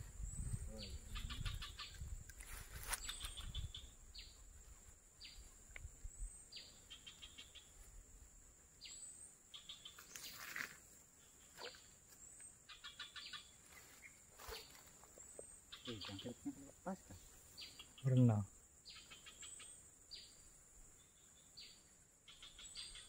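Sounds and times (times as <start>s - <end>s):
insect drone: 0.0s - 23.0s
rustle: 0.0s - 23.0s
birds whistling and chirping: 0.2s - 2.1s, 2.8s - 4.4s, 6.1s - 7.7s, 8.8s - 10.6s, 12.7s - 16.6s, 18.9s - 23.0s.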